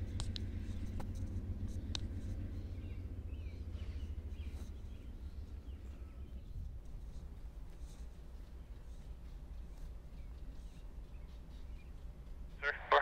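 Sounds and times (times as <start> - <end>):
low outdoor rumble: 0.0 - 13.0
faint bird chirps: 2.2 - 12.5.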